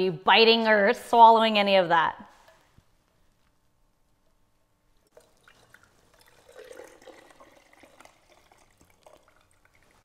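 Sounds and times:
liquid trickling and splashing: 5.0 - 10.0.

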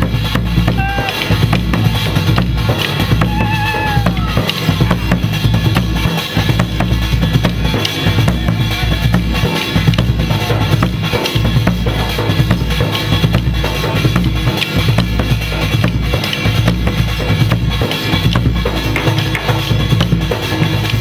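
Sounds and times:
snare drum strokes: 0.0 - 10.1
bass drum beating: 0.0 - 21.0.

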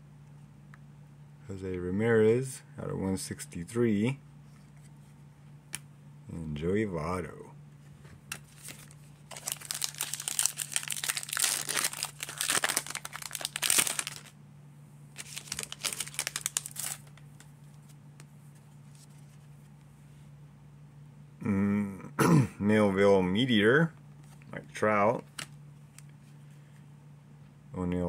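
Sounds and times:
foil wrapper tearing and crinkling: 8.3 - 14.4, 15.2 - 17.5.

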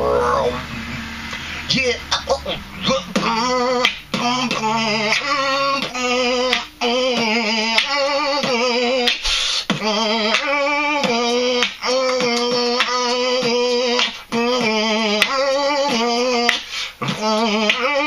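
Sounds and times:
beatboxing: 0.0 - 18.0
hummed warbling vocal tone: 0.0 - 18.0
mouth clicks and snare sounds: 6.4 - 13.0, 16.4 - 17.8.

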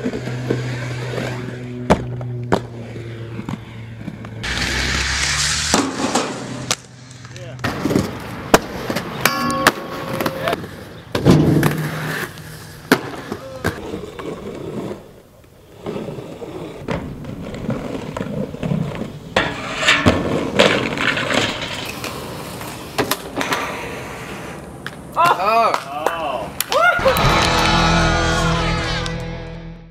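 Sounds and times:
inline skates rolling on concrete: 0.0 - 27.0
skate wheels clacking on ground: 5.7 - 26.9.

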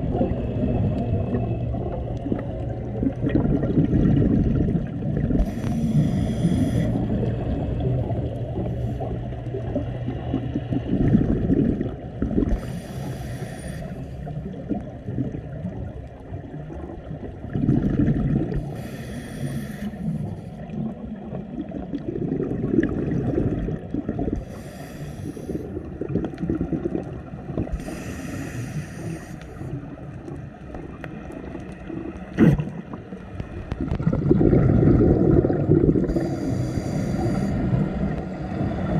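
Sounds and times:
exhaled bubbles burbling underwater: 0.0 - 38.9
low rumble of water: 0.0 - 38.9.

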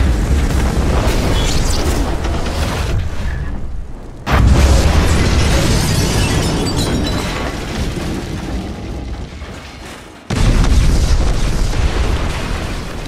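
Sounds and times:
deep rumbling explosion boom: 0.0 - 9.7, 10.3 - 13.0
heavy explosion boom: 4.2 - 9.5, 10.3 - 13.0.

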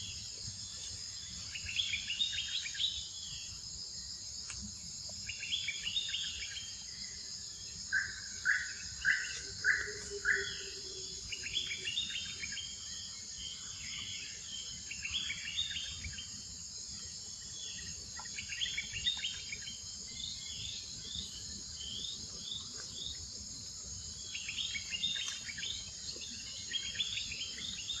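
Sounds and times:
high-pitched insect drone: 5.3 - 28.0
birds chirping: 7.9 - 12.6.

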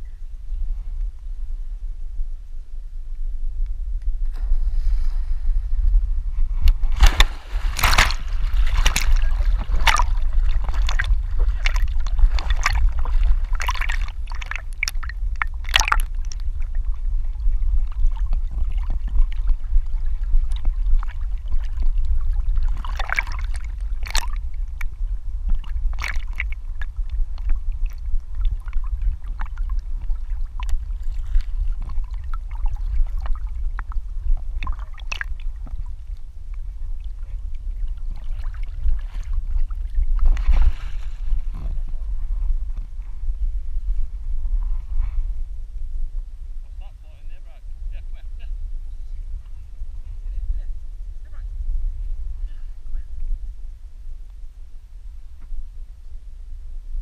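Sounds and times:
steady low rumble: 0.0 - 57.0
dog splashing in water: 7.0 - 15.0.

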